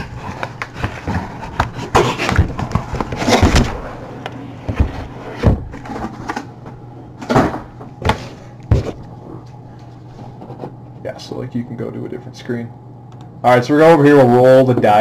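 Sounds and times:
cardboard scraping and rustling: 0:00.0 - 0:06.5.

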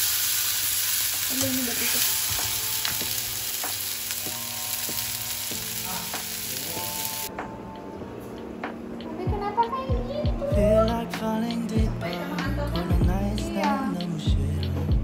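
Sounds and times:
patties sizzling in oil: 0:00.0 - 0:07.3.

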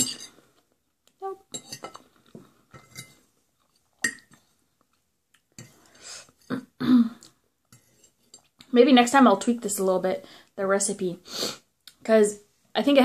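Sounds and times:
metal fork scraping a plate: 0:01.5 - 0:02.0, 0:02.8 - 0:04.2, 0:07.7 - 0:08.5.

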